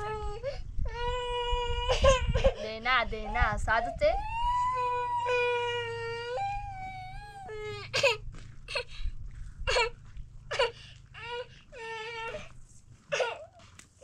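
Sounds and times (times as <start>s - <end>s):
young child crying: 0.0s - 8.9s, 10.5s - 12.5s.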